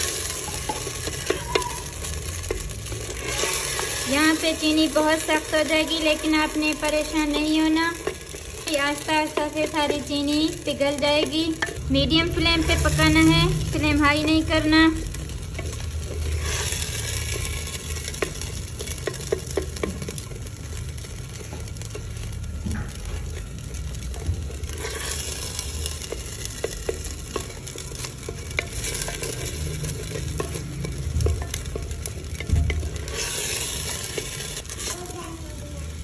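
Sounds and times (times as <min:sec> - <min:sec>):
semolina sizzling in oil: 0:00.0 - 0:36.0
wooden spatula scraping pot: 0:00.0 - 0:36.0
low rumble: 0:11.7 - 0:16.0.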